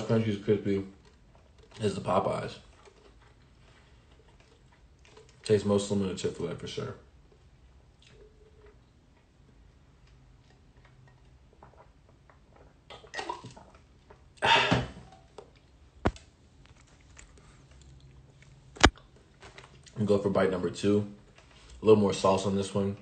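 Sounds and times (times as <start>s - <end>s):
person eating a sandwich: 0.9s - 5.5s, 7.2s - 12.8s, 13.6s - 20.0s.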